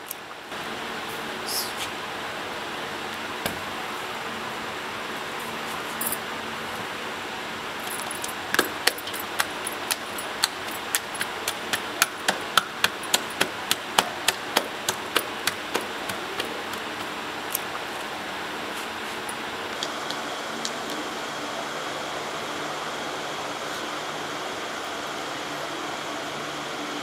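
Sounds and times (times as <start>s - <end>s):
hands slapping dough: 8.6s - 17.7s.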